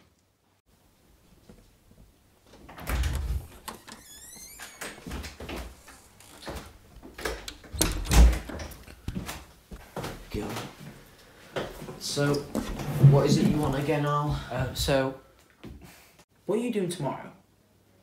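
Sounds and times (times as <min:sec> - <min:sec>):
door shutting with thump: 0:02.7 - 0:05.2
door squeaking open: 0:02.7 - 0:08.6
footsteps: 0:08.3 - 0:14.9.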